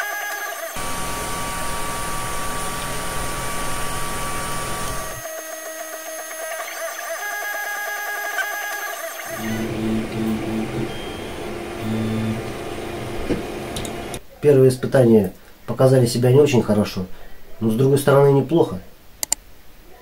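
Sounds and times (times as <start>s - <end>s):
stepper motors whining: 0.7s - 5.3s, 8.8s - 14.2s
printer fans rushing: 0.8s - 5.2s, 9.3s - 14.2s.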